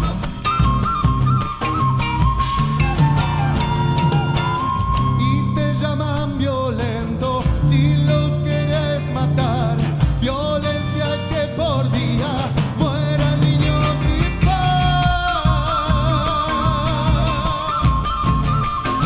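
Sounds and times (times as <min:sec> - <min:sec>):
live rock band: 0:00.0 - 0:19.0
man singing: 0:04.9 - 0:19.0.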